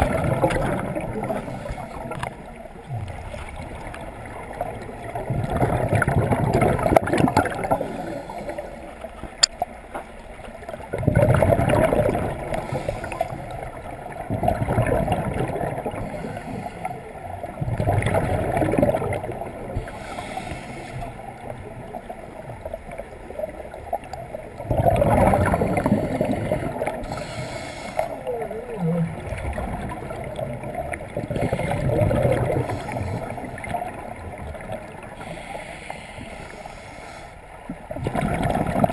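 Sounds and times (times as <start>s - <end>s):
exhaust bubbles gurgling underwater: 0.0s - 38.9s
regulator inhalation hiss: 27.0s - 28.2s, 35.2s - 37.4s.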